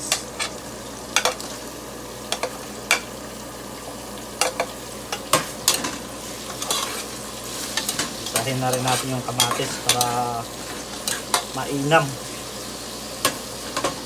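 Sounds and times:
vegetables sizzling in a pot: 0.0 - 14.0
pot being stirred: 4.4 - 12.5
spoon scraping a plate: 6.5 - 10.2.

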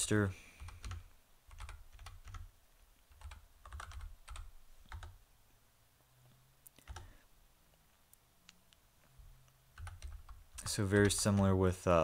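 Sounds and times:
typing on a keyboard: 0.6 - 2.5, 3.1 - 5.2, 6.8 - 7.1, 9.7 - 11.6.

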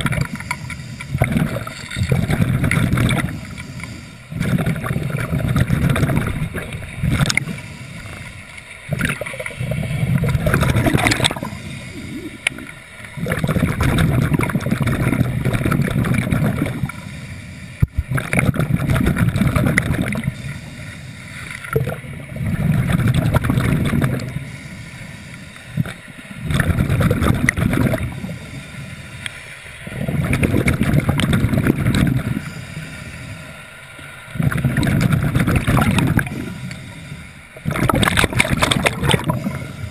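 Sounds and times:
bubbles gurgling: 0.0 - 3.6, 4.3 - 8.2, 8.9 - 17.0, 17.8 - 20.4, 21.6 - 24.4, 25.8 - 28.4, 29.9 - 32.4, 34.3 - 36.8, 37.6 - 39.9
diver breathing through regulator: 0.0 - 21.7, 22.4 - 33.8, 34.4 - 39.9.

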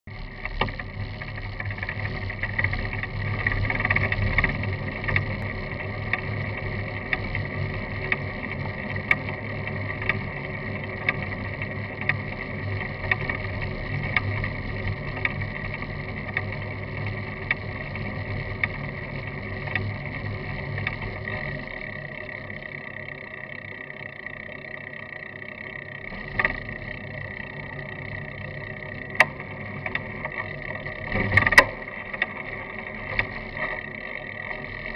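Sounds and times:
light ticks: 7.0 - 21.8.

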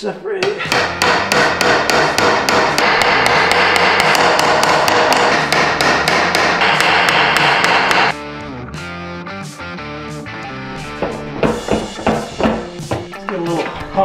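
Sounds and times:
rapid hammer blows on metal case: 0.7 - 8.1
rock music with guitar and drums: 8.0 - 14.0.

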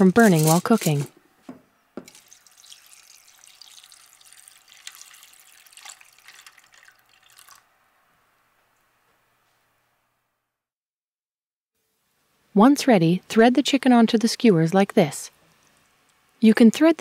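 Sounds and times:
water pouring into glass dish: 2.0 - 7.7.

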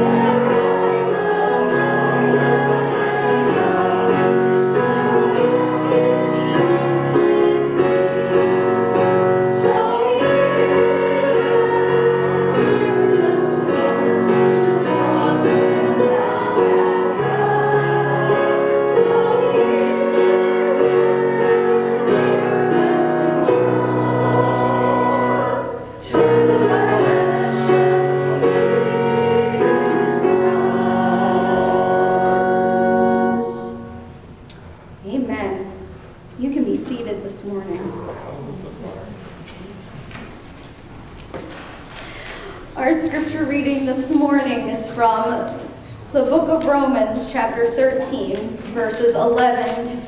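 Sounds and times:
instrumental accompaniment: 0.0 - 35.0.

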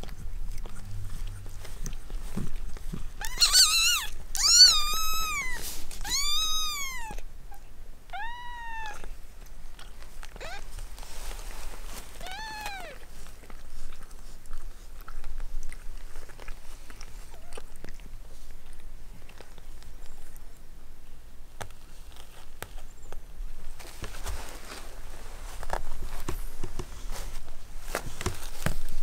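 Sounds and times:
kitten mewing: 3.2 - 9.1, 10.4 - 10.8, 12.2 - 13.1.

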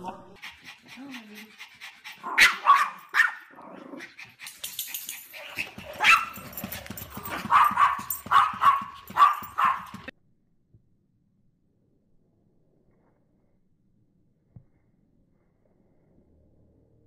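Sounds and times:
small dog yapping: 2.2 - 3.5, 5.4 - 10.1.

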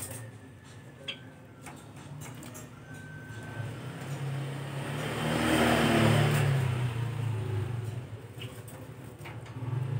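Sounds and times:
vehicle engine passing: 2.4 - 9.9.

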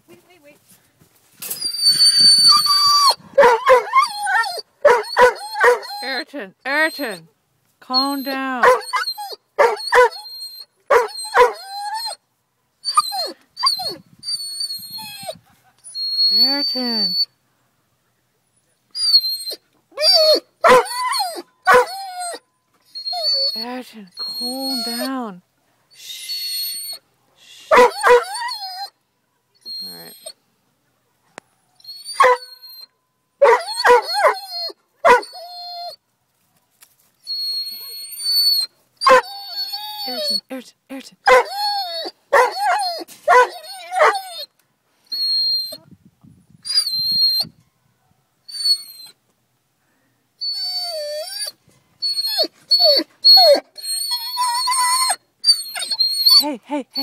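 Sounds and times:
dog whining: 1.4 - 7.2, 7.9 - 12.2, 12.8 - 17.3, 18.9 - 25.3, 25.9 - 27.0, 27.7 - 29.0, 29.6 - 30.4, 31.8 - 36.0, 37.3 - 40.5, 41.2 - 45.8, 46.6 - 47.5, 48.5 - 49.2, 50.4 - 57.0
dog yelping barks: 1.8 - 6.2, 8.6 - 12.2, 12.8 - 15.4, 19.0 - 22.4, 27.7 - 28.9, 31.9 - 36.0, 37.7 - 40.4, 41.2 - 44.5, 52.1 - 57.0
dog barking: 3.4 - 3.9, 4.8 - 5.9, 8.6 - 8.9, 9.6 - 10.1, 10.9 - 11.6, 20.6 - 20.9, 21.7 - 21.9, 27.7 - 28.2, 33.4 - 34.4, 35.0 - 35.2, 39.1 - 39.3, 41.3 - 41.5, 42.3 - 44.2.

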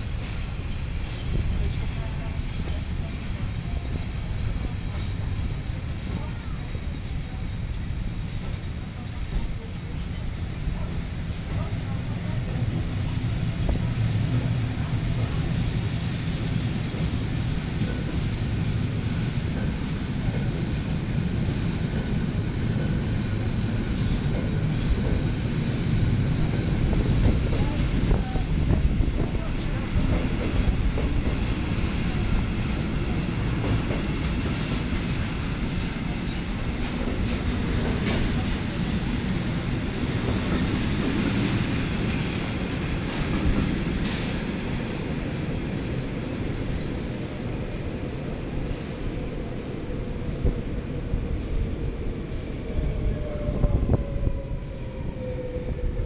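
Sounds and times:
freight train rumbling past: 0.0 - 56.0
high wheel squeal: 38.1 - 42.1.

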